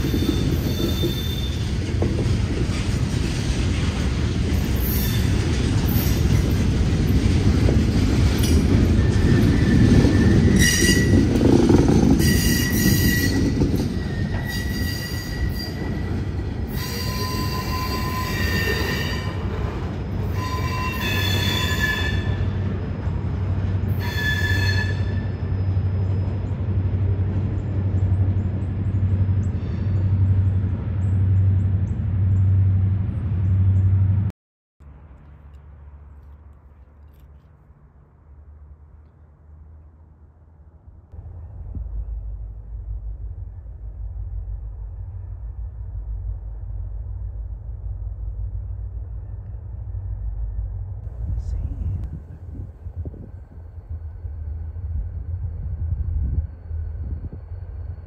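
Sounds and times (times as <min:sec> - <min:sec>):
wheel squeal: 0:00.0 - 0:01.7, 0:08.4 - 0:11.3, 0:12.1 - 0:19.4, 0:20.2 - 0:22.5
freight train wheels rumbling: 0:00.0 - 0:34.3, 0:40.8 - 0:58.0.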